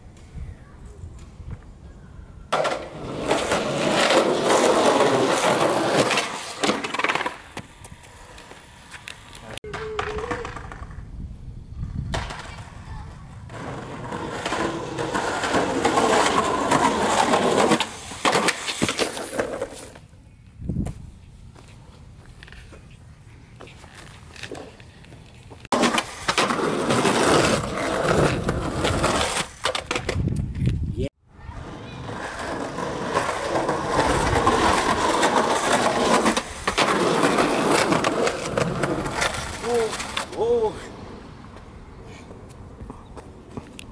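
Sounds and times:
skateboard wheels rolling on concrete: 0.0s - 43.9s
skateboard clattering on concrete: 2.5s - 8.6s, 13.5s - 20.0s, 25.7s - 30.2s, 32.0s - 40.4s
skateboard clacking: 2.5s - 11.0s.

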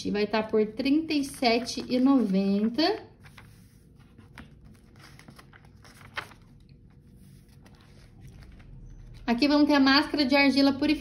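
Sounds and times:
paper pages rustling: 1.1s - 9.3s.

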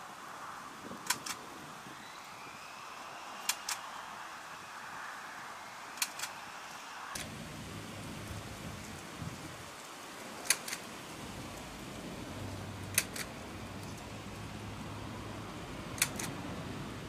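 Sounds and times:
background hiss: 0.0s - 17.0s
sharp clicks in pairs: 1.0s - 1.4s, 3.4s - 3.9s, 6.0s - 6.3s, 10.4s - 10.9s, 12.9s - 14.0s, 16.0s - 16.4s.

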